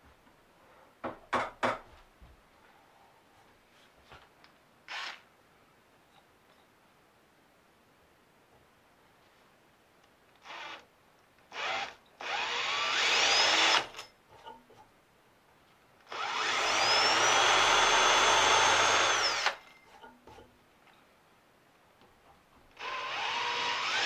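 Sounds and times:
cordless drill boring into wood: 4.9 - 5.2, 10.4 - 10.8, 11.5 - 14.0, 16.1 - 19.6, 22.8 - 24.0.

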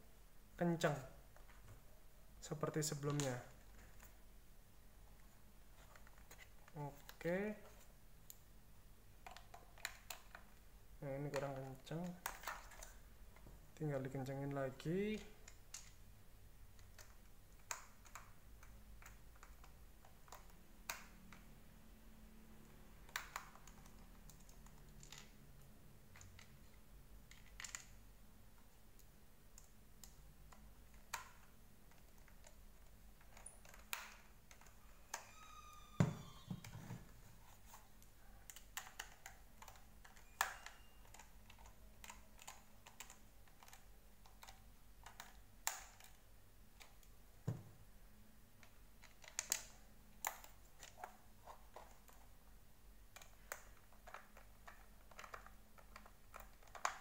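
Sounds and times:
short creak: 34.8 - 36.8
faint plastic clicks and taps: 37.7 - 46.2, 53.1 - 57.0.

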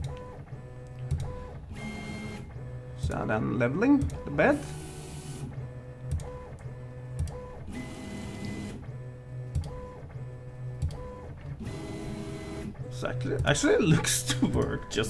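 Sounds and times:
sharp clicks: 6.0 - 7.4.

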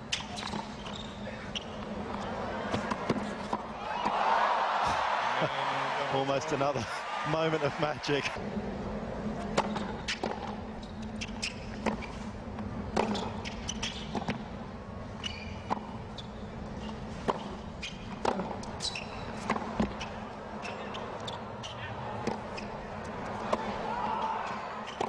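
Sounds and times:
tennis ball bouncing: 0.1 - 4.2, 9.5 - 10.6, 11.2 - 14.6, 15.6 - 23.8
rackets striking tennis ball: 12.9 - 14.4.

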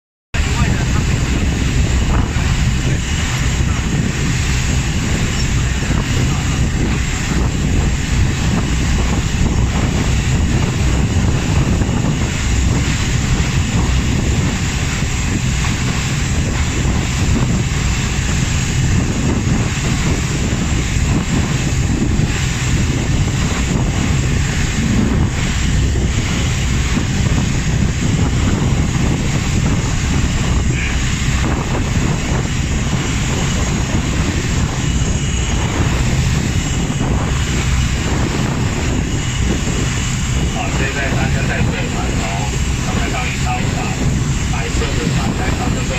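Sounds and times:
ferry engines droning: 0.4 - 45.9
water rushing: 0.4 - 45.9
wind buffeting microphone: 0.4 - 45.9.

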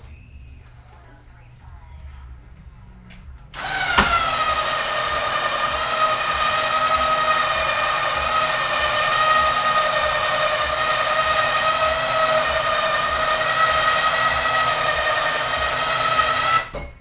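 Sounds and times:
electric winch motor whining: 3.6 - 16.8.

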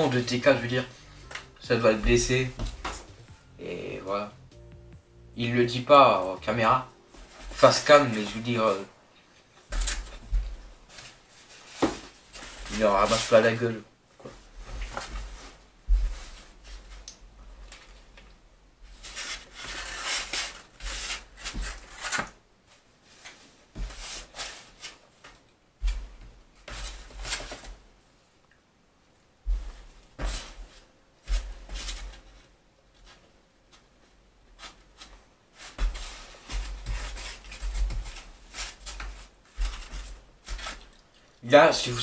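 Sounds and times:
dull low thumps: 1.2 - 3.6.

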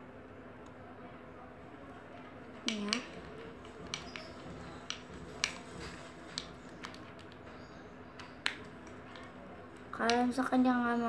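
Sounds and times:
stirrer clicking against plastic bowl: 2.6 - 7.4.

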